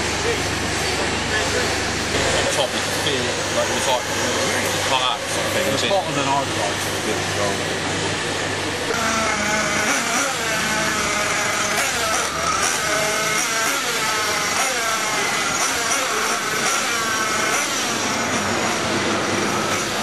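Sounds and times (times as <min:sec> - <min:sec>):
rc car engines whining: 0:00.0 - 0:20.0.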